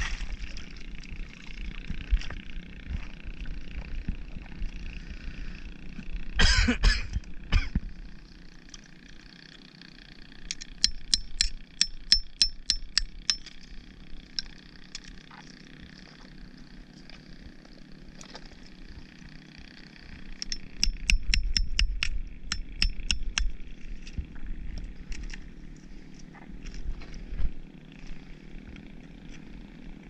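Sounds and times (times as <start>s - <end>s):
hammer tapping oyster shells: 10.8s - 13.5s, 20.4s - 23.5s.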